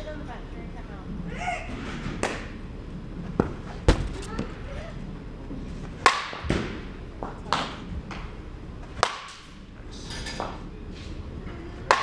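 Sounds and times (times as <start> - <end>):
bat hitting softball: 6.0 - 6.9, 9.0 - 9.5.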